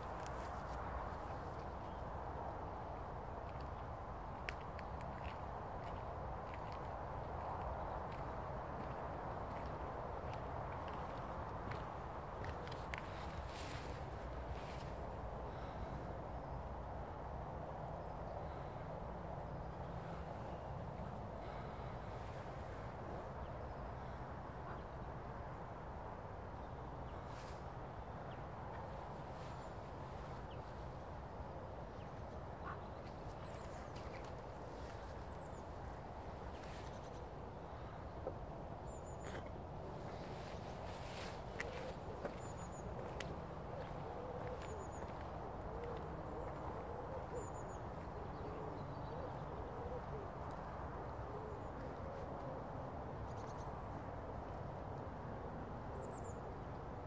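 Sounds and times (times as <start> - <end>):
low wind rumble: 0.0 - 57.0
outdoor background rush: 0.0 - 57.0
small birds chirping: 31.8 - 49.5
soft hooting calls: 39.0 - 52.7.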